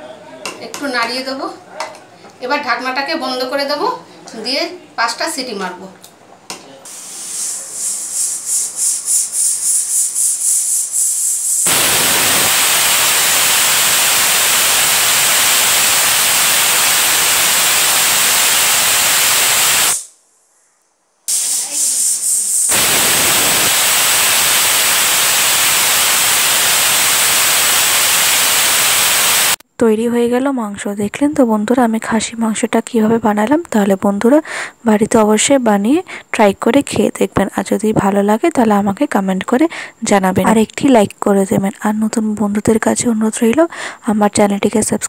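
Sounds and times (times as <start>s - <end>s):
pressure cooker whistle venting steam: 6.9s - 20.2s, 21.3s - 29.6s.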